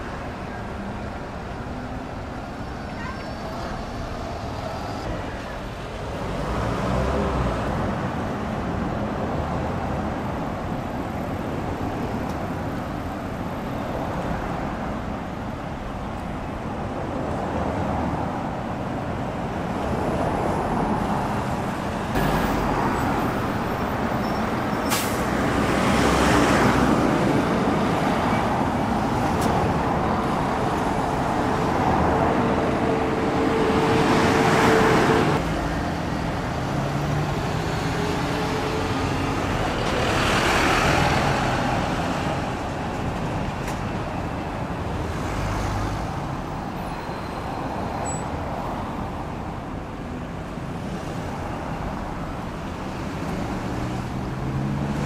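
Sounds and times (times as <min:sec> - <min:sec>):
buses and cars driving past: 0:00.0 - 0:55.0.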